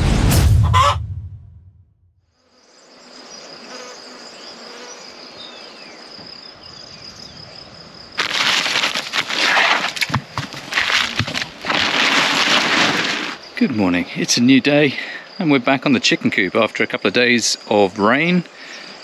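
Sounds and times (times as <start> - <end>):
insects buzzing and chirping: 2.2 - 19.0
loud crackling rustling noise: 8.2 - 13.4.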